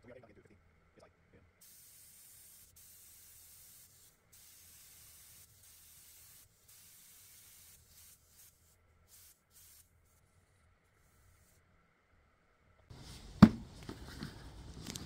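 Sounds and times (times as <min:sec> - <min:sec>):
air hissing from tire valve: 0:01.6 - 0:10.2.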